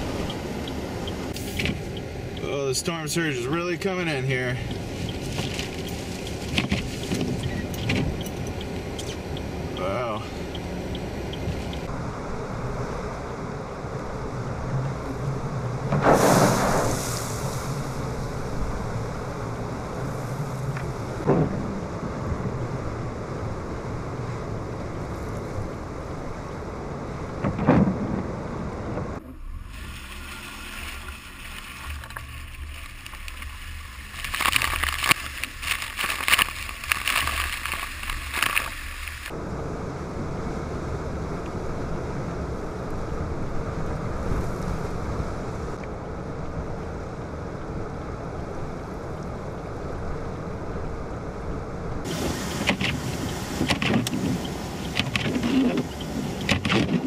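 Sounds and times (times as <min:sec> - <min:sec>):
tyres swishing through water: 0:04.5 - 0:11.9, 0:29.6 - 0:39.4, 0:52.0 - 0:57.0.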